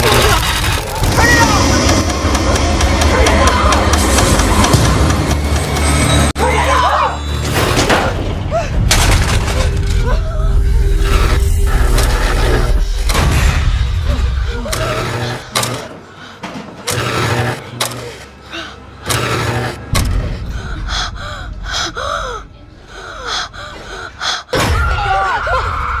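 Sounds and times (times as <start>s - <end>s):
low hum: 8.2s - 15.9s.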